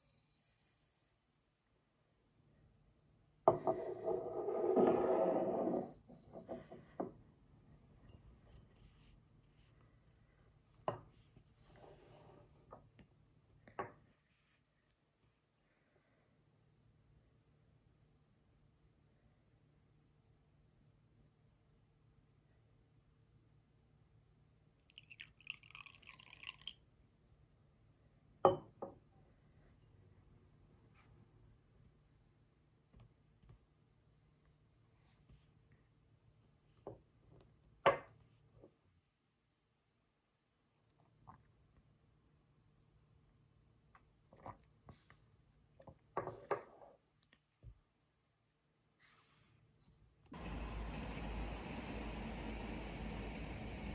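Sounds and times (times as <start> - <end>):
glass knocking on wooden table: 3.5 - 7.2
glass dragged across wood: 3.7 - 6.7
liquid pouring into cup: 24.9 - 27.0.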